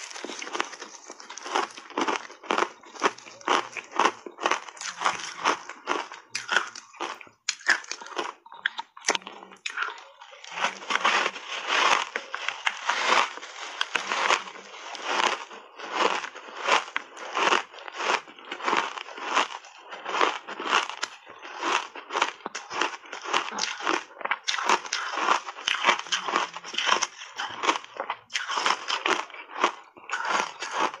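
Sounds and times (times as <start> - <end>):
ice crunching while chewed: 0.0 - 31.0.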